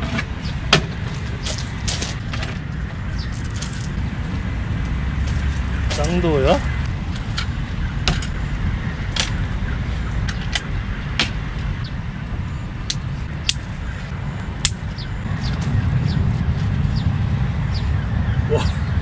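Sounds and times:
camping gear clicking and clinking: 0.0 - 4.0
steady low rumble: 0.0 - 19.0.

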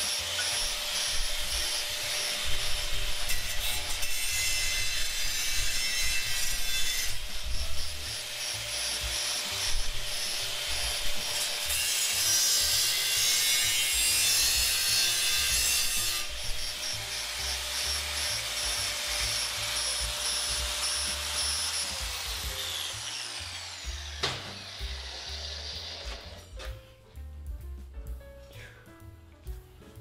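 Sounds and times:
grinder cutting metal: 0.0 - 26.6
angle grinder motor whine: 19.4 - 26.4
grinder wheel spinning down: 19.8 - 26.5.

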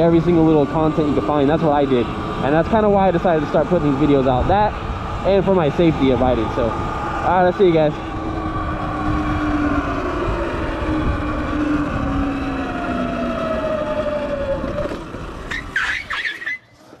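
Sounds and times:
wind rumble: 0.0 - 15.8
electric motor whining: 0.0 - 16.2
short high squeaks: 15.5 - 17.0.

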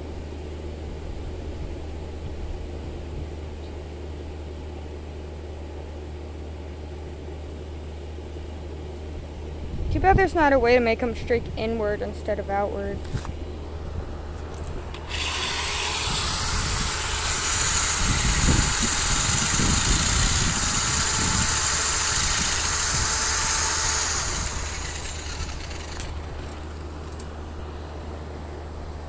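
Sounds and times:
electric drill whirring: 14.9 - 26.7.

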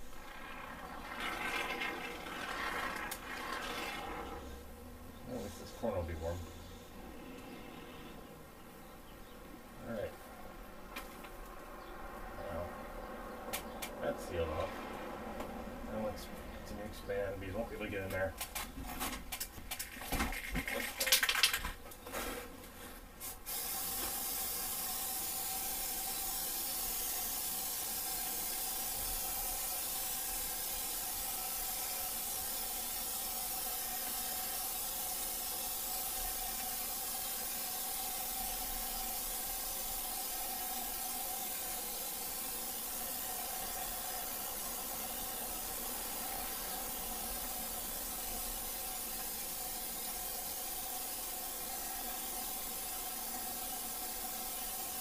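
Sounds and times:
aerosol spray can hissing: 0.0 - 4.6, 23.2 - 55.0.

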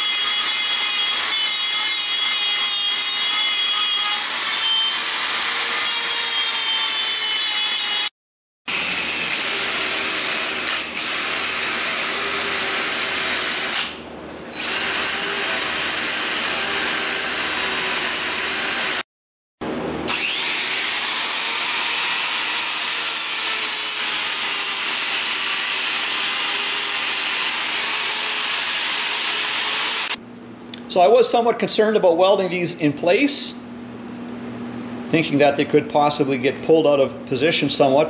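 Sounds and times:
die grinder grinding metal: 0.0 - 8.1, 8.7 - 19.0, 20.1 - 30.2.

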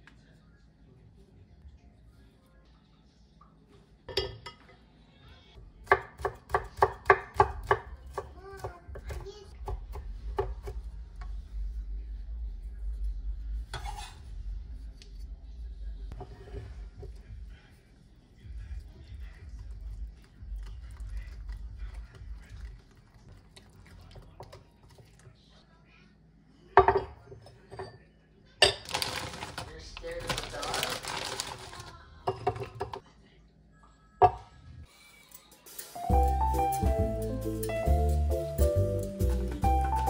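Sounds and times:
low rumble: 10.0 - 17.6.

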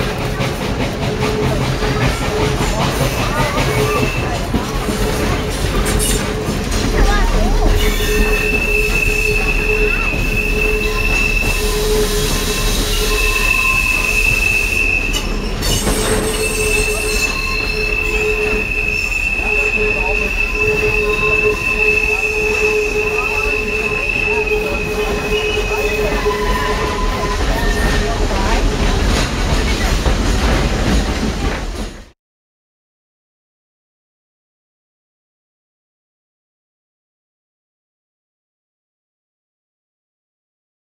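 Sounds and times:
train cars rumbling on track: 0.0 - 32.2
train wheels squealing on rails: 0.1 - 32.1.

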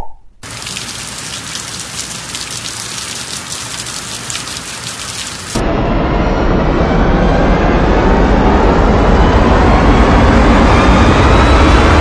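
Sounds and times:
pattering rain: 0.4 - 5.6.

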